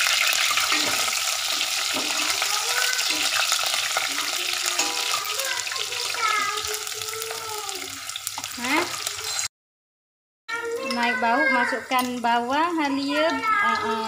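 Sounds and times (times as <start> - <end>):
metal ladle stirring: 0.0 - 6.5, 13.0 - 14.0
leaves sizzling in hot oil: 0.0 - 9.5.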